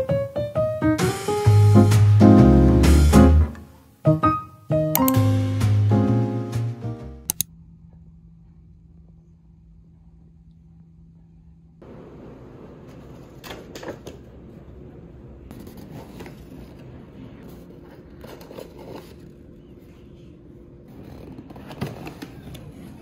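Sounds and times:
room noise: 7.3 - 23.0.

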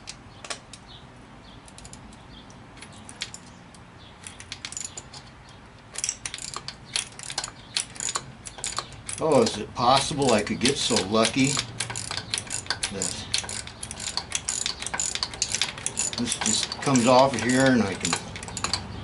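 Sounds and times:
ratchet wrench clicking: 6.0 - 19.0.

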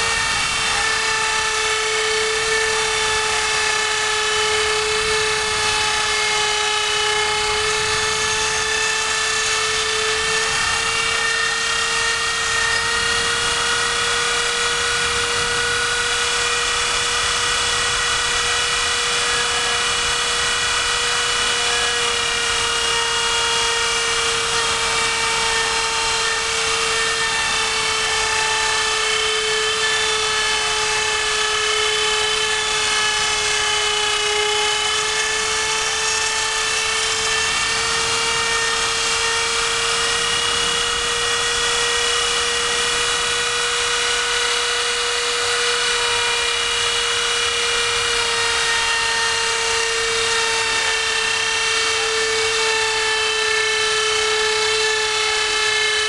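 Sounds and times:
router spindle whining: 0.0 - 56.0.

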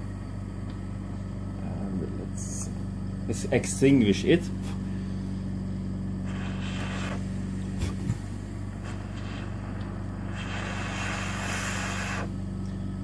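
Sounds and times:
compressor humming: 0.0 - 13.0
hissing: 6.2 - 12.4.

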